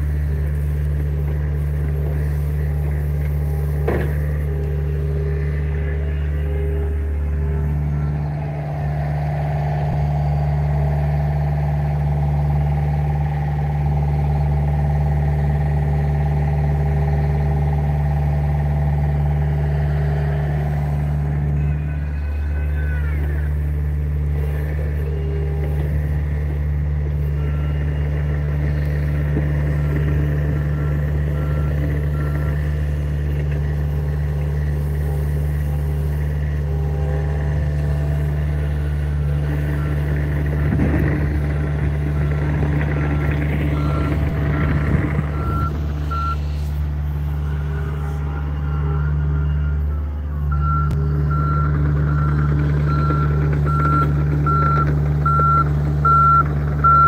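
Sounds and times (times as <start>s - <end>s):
diesel engine running: 0.0s - 57.0s
warning alarm beeping: 43.0s - 46.4s, 48.8s - 57.0s.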